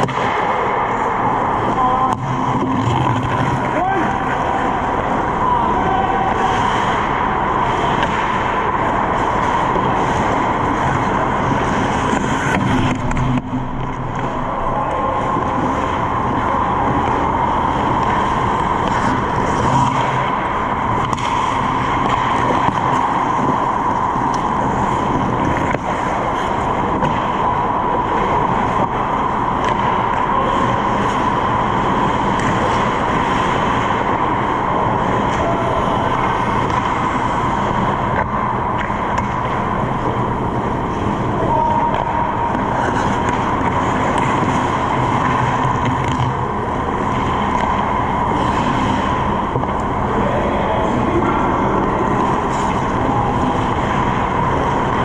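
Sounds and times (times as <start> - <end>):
hockey sticks and puck clicking: 0.0 - 50.2, 50.9 - 55.0
indoor ice rink noise: 0.0 - 55.0
low hum: 0.0 - 55.0.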